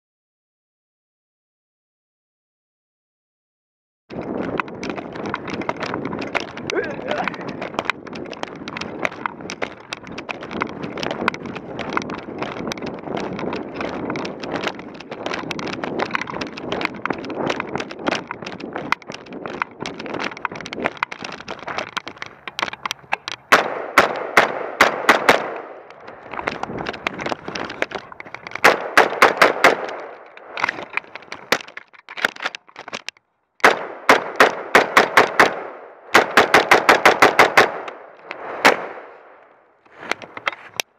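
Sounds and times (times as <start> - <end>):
rustling: 4.1 - 33.2, 37.8 - 40.9
wind noise: 4.1 - 40.9
rifle firing rapid shots: 23.5 - 25.8, 28.6 - 30.2, 33.6 - 39.2.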